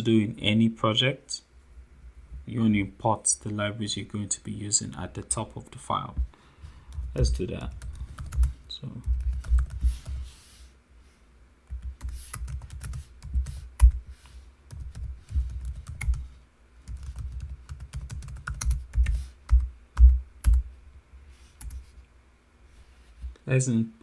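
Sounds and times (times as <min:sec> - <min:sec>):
computer keyboard typing: 0:06.9 - 0:10.2, 0:11.7 - 0:14.0, 0:14.7 - 0:20.7, 0:21.6 - 0:21.9.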